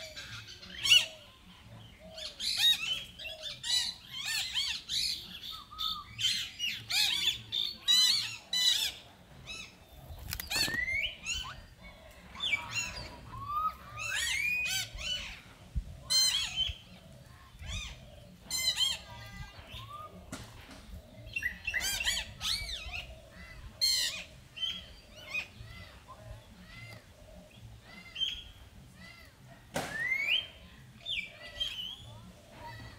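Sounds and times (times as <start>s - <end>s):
monkeys squealing and chirping: 2.4s - 11.8s, 12.4s - 15.5s, 17.6s - 20.1s.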